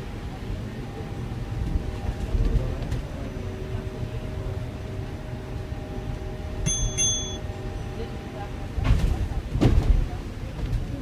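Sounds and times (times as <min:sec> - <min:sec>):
bus cabin low rumble: 0:00.0 - 0:11.0
brief high tone: 0:06.6 - 0:07.5.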